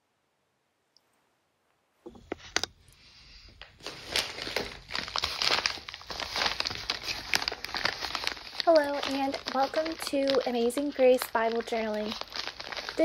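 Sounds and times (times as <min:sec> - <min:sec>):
plastic bag crinkling: 0:03.5 - 0:13.0.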